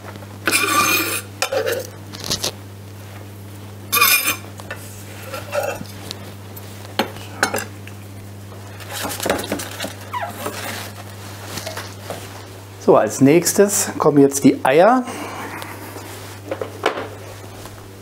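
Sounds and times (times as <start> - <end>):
knife scraping metal pan: 0.5 - 1.9, 3.9 - 4.5, 5.2 - 5.9.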